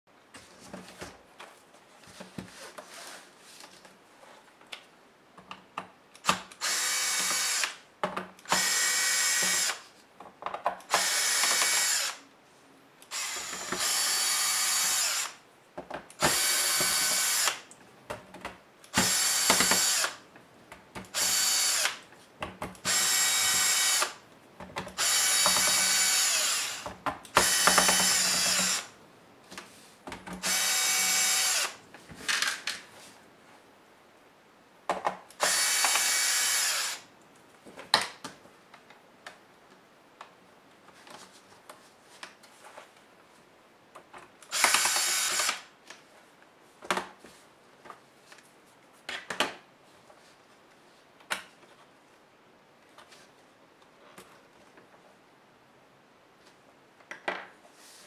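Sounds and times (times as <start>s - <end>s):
electric screwdriver whirring: 6.2s - 7.8s, 8.5s - 9.8s, 10.9s - 12.2s, 13.1s - 15.4s, 16.2s - 17.6s, 18.9s - 20.2s, 21.1s - 22.0s, 22.8s - 24.2s, 25.0s - 28.9s, 30.4s - 31.8s, 35.4s - 37.0s, 44.5s - 45.6s.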